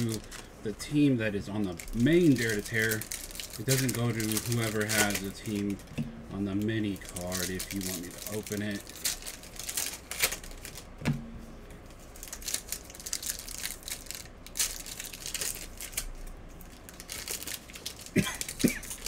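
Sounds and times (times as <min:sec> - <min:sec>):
wrappers crinkling: 0:00.0 - 0:11.0, 0:11.8 - 0:19.0
cards being shuffled: 0:01.6 - 0:11.1.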